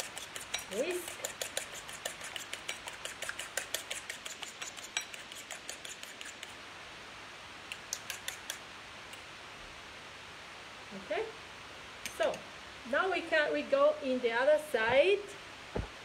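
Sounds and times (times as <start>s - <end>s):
fork whisking egg in bowl: 0.0s - 6.6s, 7.7s - 8.6s.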